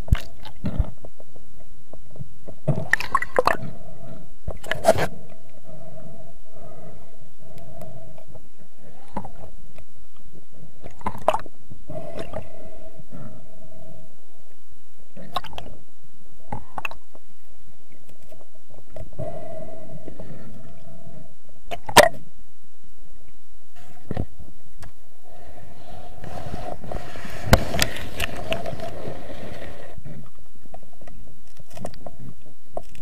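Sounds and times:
underwater water movement rumble: 0:23.8 - 0:33.0.

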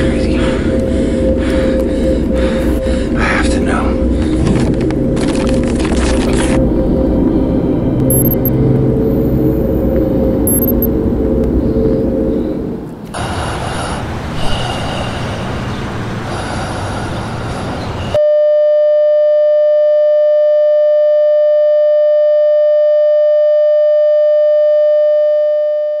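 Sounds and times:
single-pitch test tone: 0:08.1 - 0:08.5, 0:10.5 - 0:10.9, 0:18.2 - 0:26.0.

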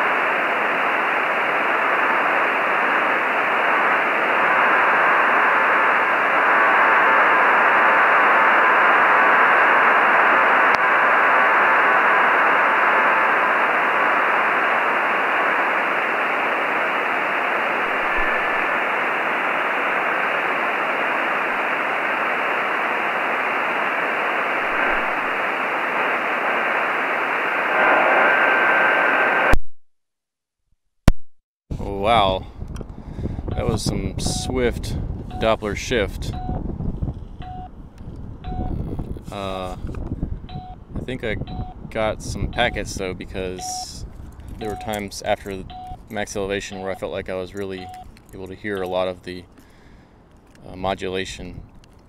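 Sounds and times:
weak steady telemetry tones: 0:00.0 - 0:29.4, 0:33.5 - 0:34.7, 0:40.5 - 0:49.7
radio receiver hiss: 0:00.0 - 0:29.6, 0:33.5 - 0:36.6, 0:38.5 - 0:52.0.

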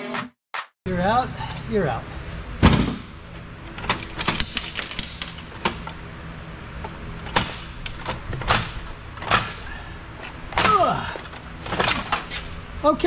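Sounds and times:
metal parts clicking and knocking: 0:03.7 - 0:06.0.

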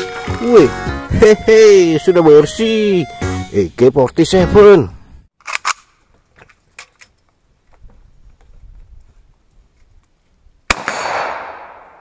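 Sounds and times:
rifle shot with echo: 0:10.7 - 0:12.0.

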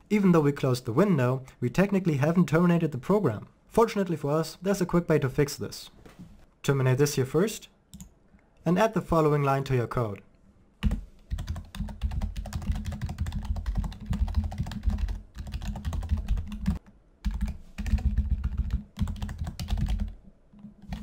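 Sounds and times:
fast typing on keyboard: 0:10.8 - 0:21.0.

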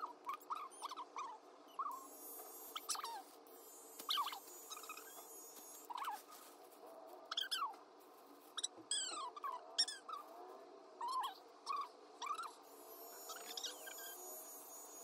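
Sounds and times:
electric pet clipper hum: 0:01.8 - 0:05.9, 0:12.6 - 0:15.0.

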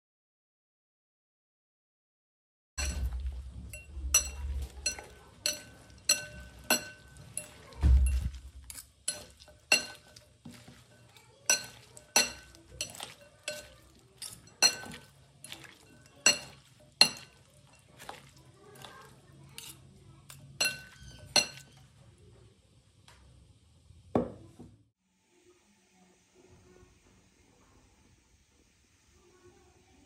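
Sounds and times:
metal utensils clinking on glass bowl: 0:02.8 - 0:21.9.

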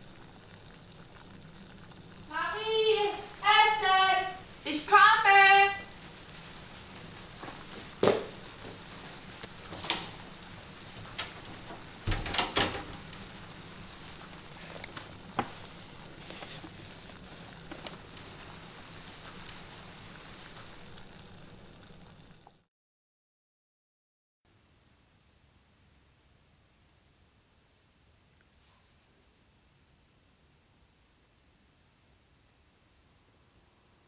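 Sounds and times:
steady hiss: 0:00.0 - 0:22.6, 0:24.5 - 0:34.0
rustling and scratching: 0:05.9 - 0:21.0.

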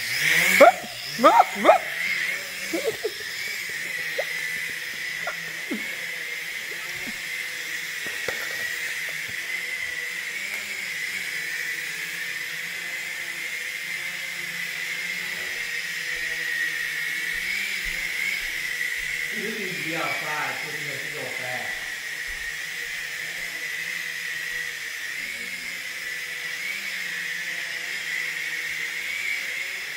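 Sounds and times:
toy drone propellers whining: 0:00.0 - 0:29.9.

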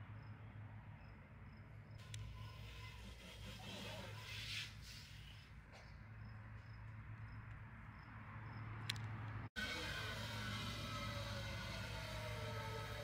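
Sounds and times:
insect chirping: 0:01.0 - 0:08.8.

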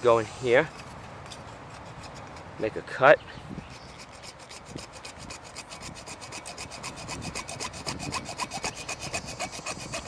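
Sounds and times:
hacksaw cutting plastic pipe: 0:03.7 - 0:10.0.

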